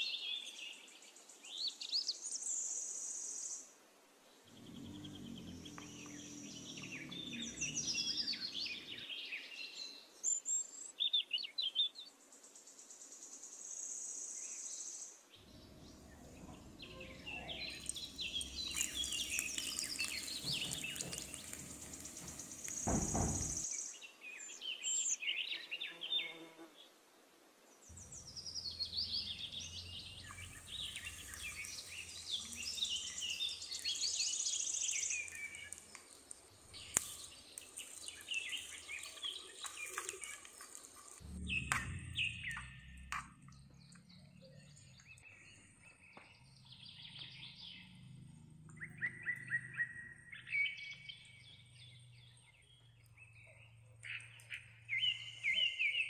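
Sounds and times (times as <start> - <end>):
birds chirping: 4.4 - 10.1, 15.4 - 26.0, 27.9 - 56.0
high insect drone: 16.2 - 23.7
low thump: 20.7 - 23.6.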